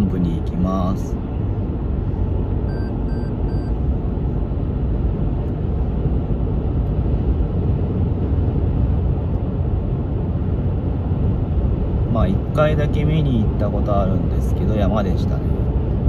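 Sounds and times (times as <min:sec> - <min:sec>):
road and engine rumble: 0:00.0 - 0:16.0
short electronic beeps: 0:02.6 - 0:03.8.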